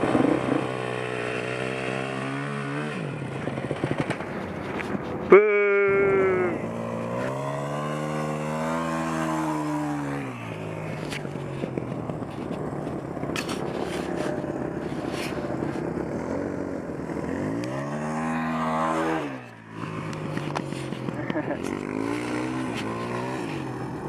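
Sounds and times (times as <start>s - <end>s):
wind noise: 0.0s - 1.2s
dirt bike engine revving: 0.0s - 24.0s.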